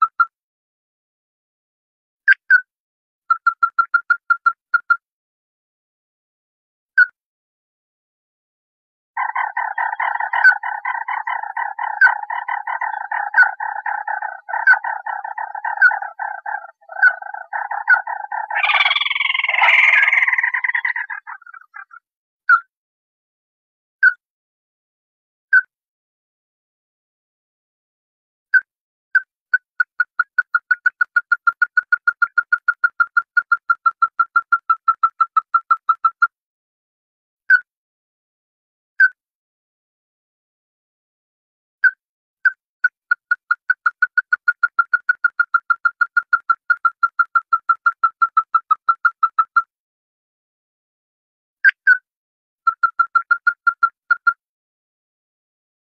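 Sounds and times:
harsh bird chattering call: 0:09.2 - 0:22.0.

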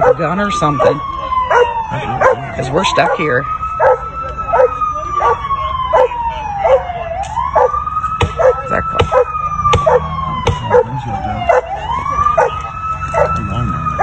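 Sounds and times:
dog barking: 0:00.0 - 0:00.2, 0:01.5 - 0:06.9, 0:08.4 - 0:10.9, 0:11.5 - 0:11.8, 0:12.4 - 0:12.6
police siren wailing: 0:00.0 - 0:14.0
sharp knocks: 0:09.0 - 0:10.7.

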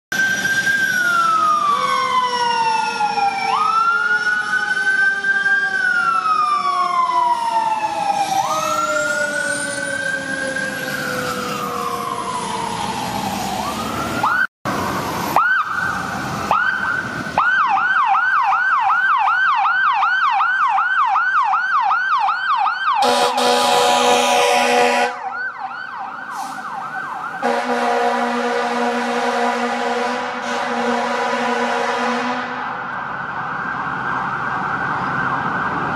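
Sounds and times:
siren yelping: 0:00.1 - 0:30.6, 0:32.6 - 0:35.9
siren wailing: 0:00.1 - 0:35.9
fire engine horn blasts: 0:23.0 - 0:25.4, 0:27.4 - 0:32.8.

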